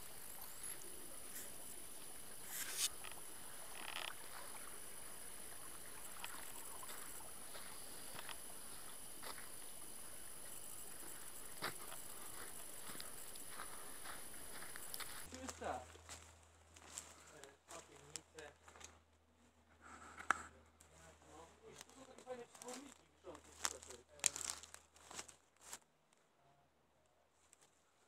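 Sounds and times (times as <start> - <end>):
footsteps on leaves: 0.0 - 5.3, 10.8 - 18.9, 21.0 - 25.8
water rushing in stream: 0.0 - 15.3
brief rustle: 2.4 - 3.2.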